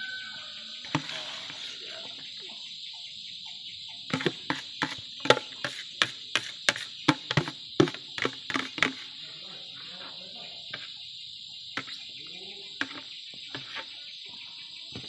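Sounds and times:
crickets chirping drone: 0.0 - 15.0
ladle knocking on plastic basin: 0.9 - 1.8, 4.1 - 9.1, 12.8 - 13.8.

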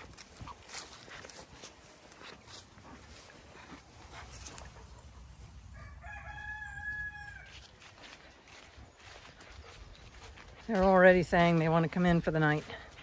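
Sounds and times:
rooster crowing: 5.7 - 7.7.

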